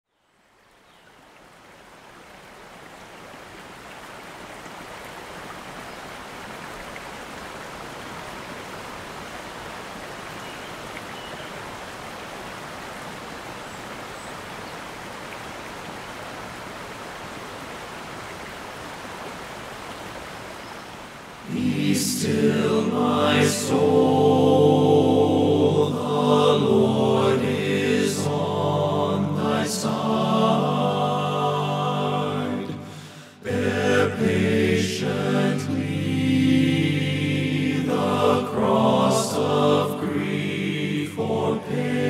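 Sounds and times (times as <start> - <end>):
river water rushing over rocks: 1.2 - 22.2.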